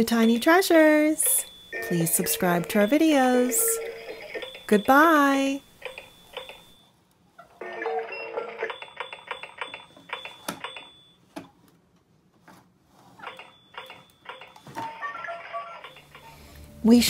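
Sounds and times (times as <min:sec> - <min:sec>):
short bleeping tones: 0:00.1 - 0:06.9.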